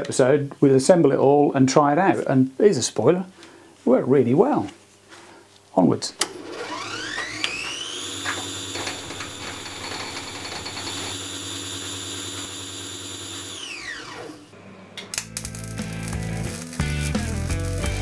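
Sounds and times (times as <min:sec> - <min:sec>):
power tool motor whine: 0:06.2 - 0:14.6.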